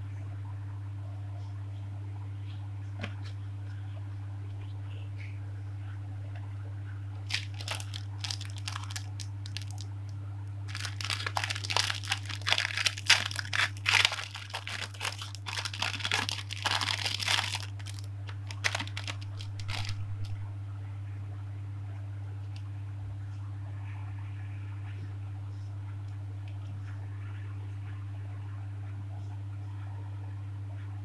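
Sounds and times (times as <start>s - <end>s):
steady low hum: 0.0s - 31.0s
plastic packaging crinkling: 7.2s - 10.0s, 10.7s - 20.4s.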